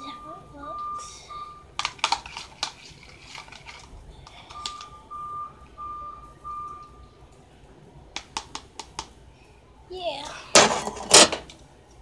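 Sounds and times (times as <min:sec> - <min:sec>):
faint beeping tone: 0:00.0 - 0:01.8, 0:04.1 - 0:07.3.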